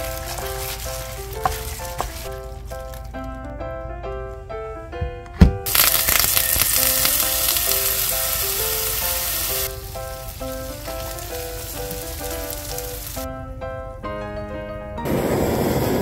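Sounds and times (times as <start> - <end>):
cheese sizzling on hot platter: 0.0 - 2.3, 5.7 - 13.3.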